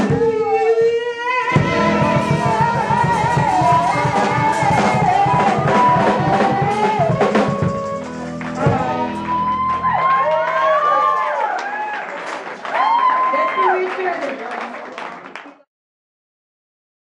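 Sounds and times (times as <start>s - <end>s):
drum kit beat: 0.0s - 0.6s, 1.4s - 10.5s
harmonica bending notes: 1.3s - 10.0s
upright bass: 1.4s - 10.4s.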